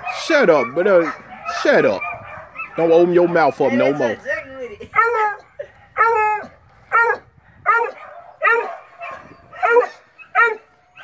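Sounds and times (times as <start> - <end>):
dog barking: 0.0 - 4.2, 6.9 - 10.6.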